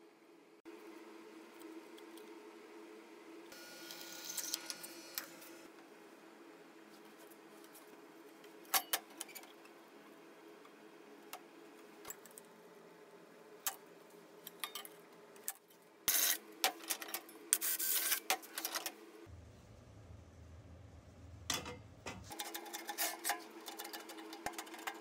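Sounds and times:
steady low hum: 19.1s - 22.3s.

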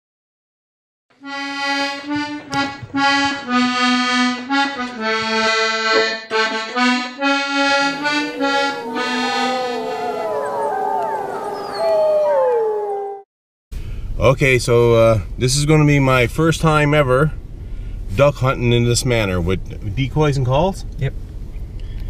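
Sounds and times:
lively intro music: 1.2s - 10.5s
wavering howls: 7.9s - 13.2s.

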